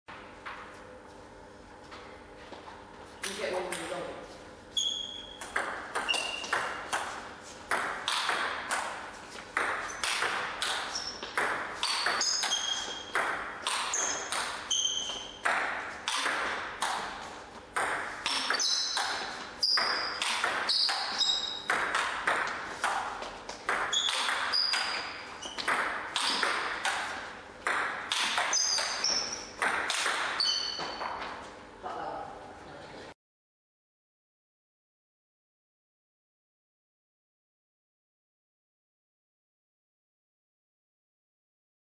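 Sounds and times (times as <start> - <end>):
table tennis ball pocks and pings: 4.8 - 31.3.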